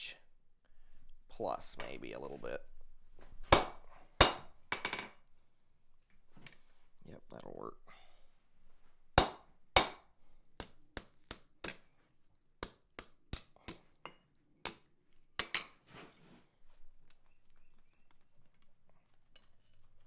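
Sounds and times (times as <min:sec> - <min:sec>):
hammer striking steel: 0:09.2 - 0:10.0.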